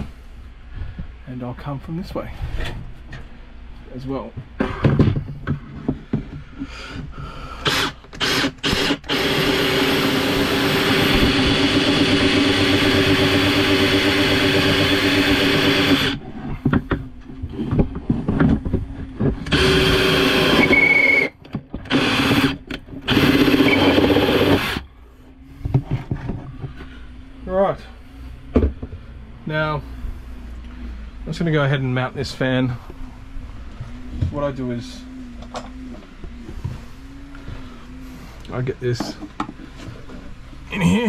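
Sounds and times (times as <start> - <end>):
cordless drill boring through wood: 7.6 - 16.2, 19.4 - 21.3, 21.9 - 24.8.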